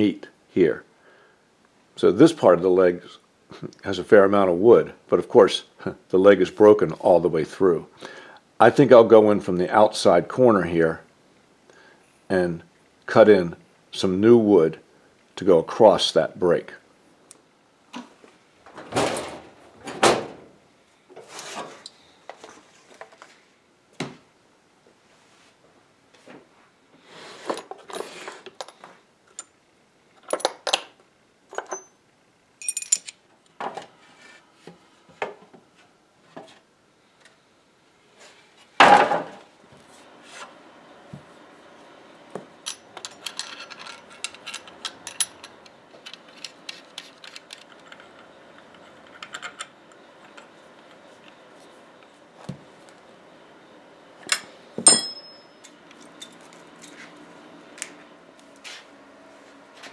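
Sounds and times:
metal fittings clinking in drawer: 42.7 - 49.7.

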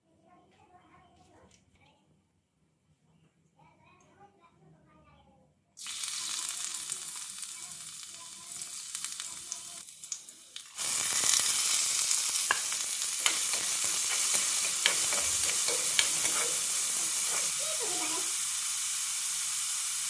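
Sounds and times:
garlic sizzling in hot oil: 5.8 - 20.0
spatula scraping a pan: 12.5 - 18.3.

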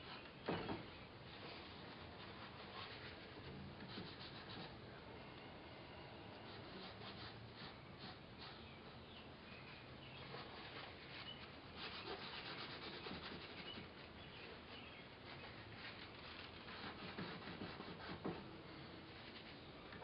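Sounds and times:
paintbrush scrubbing on canvas: 1.4 - 4.8, 6.5 - 8.9, 10.2 - 14.1, 14.8 - 18.4.

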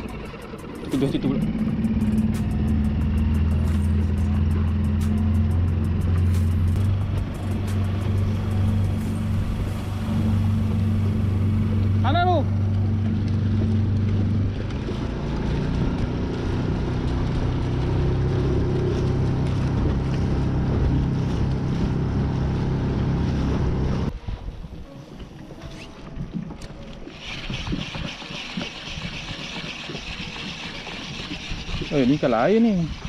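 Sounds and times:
small boat motor running: 0.0 - 24.1, 25.1 - 33.0
water splashing along hull: 0.0 - 33.0
wind: 0.0 - 33.0.

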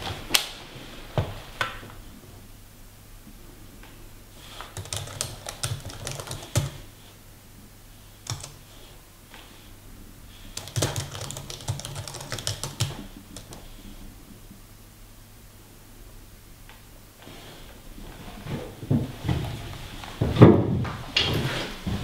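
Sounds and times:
typing on computer keyboard: 4.6 - 6.9, 8.2 - 8.8, 10.5 - 13.7.

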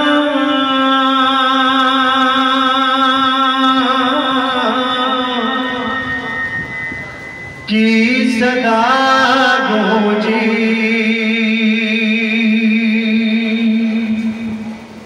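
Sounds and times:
man chanting unaccompanied: 0.0 - 6.4, 7.7 - 14.6.

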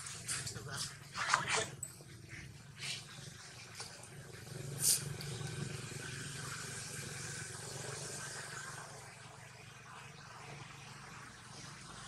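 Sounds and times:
brief high hiss: 4.8 - 5.1.

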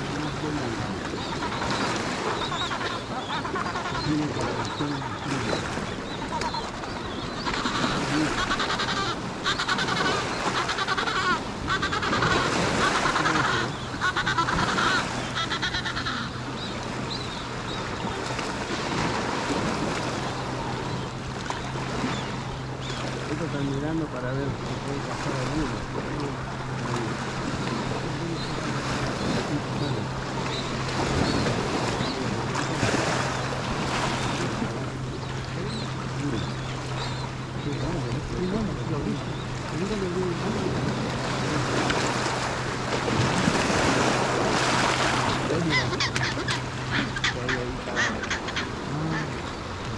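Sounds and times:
penguins braying calls: 0.0 - 16.5, 45.1 - 49.6
steady low hum: 0.0 - 49.9
water lapping on shore: 0.0 - 49.9.

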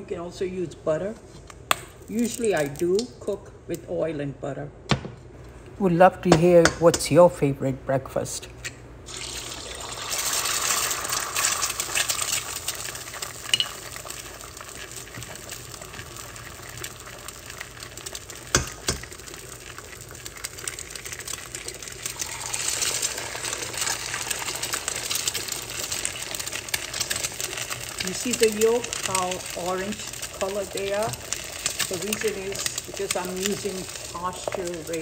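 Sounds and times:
eggs sizzling in a frying pan: 1.5 - 3.1, 9.0 - 35.0.

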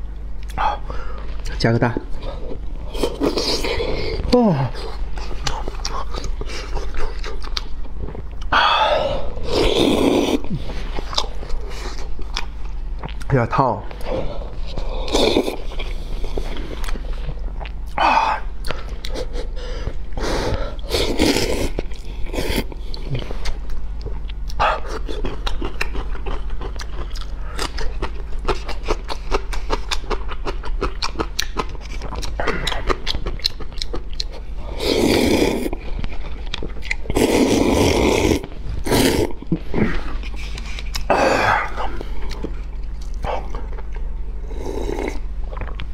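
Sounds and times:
crunchy chewing of pickle: 2.2 - 8.6, 9.2 - 13.4, 14.0 - 45.9
slurping noodles: 9.4 - 10.8, 20.2 - 22.7, 34.6 - 35.8, 37.1 - 40.0.

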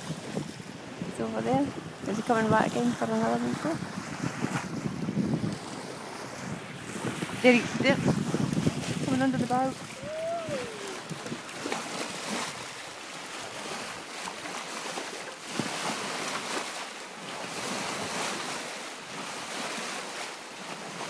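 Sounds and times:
wind buffeting microphone: 0.0 - 14.1
water rushing along hull: 0.0 - 21.0.

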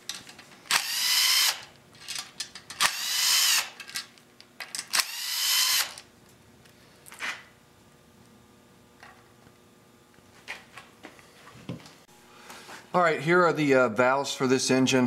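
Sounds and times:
power drill motor whine: 0.7 - 1.7, 2.8 - 3.8, 4.9 - 6.1.

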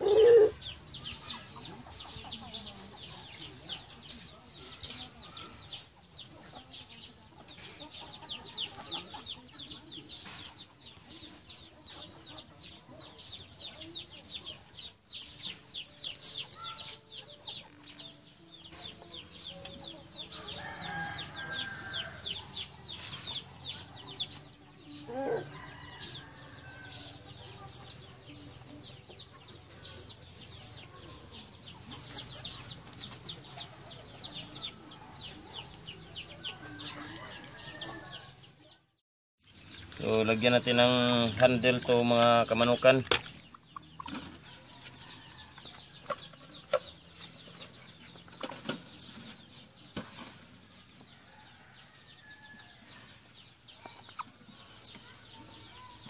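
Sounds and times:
chickens clucking: 0.0 - 20.3, 27.2 - 38.1, 53.0 - 55.8.

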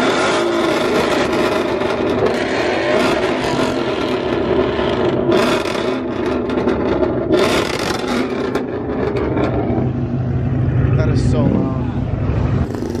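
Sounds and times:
exhaust crackle and pops: 0.0 - 11.4, 12.6 - 13.0
car engine exhaust roaring: 0.0 - 13.0.

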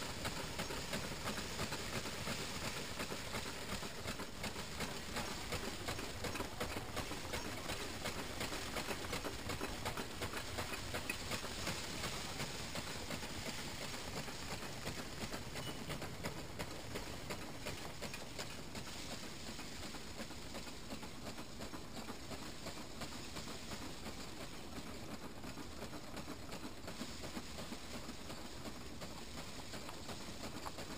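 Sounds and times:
threshing machine rattling: 0.0 - 25.4.

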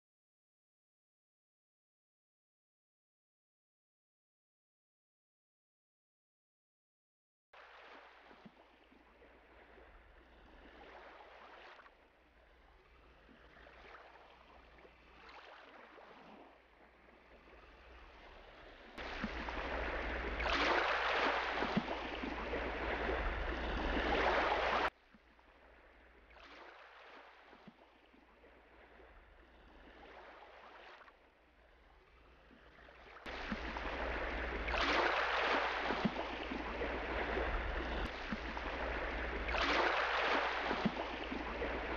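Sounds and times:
sea waves washing: 12.8 - 24.9, 32.7 - 41.9.

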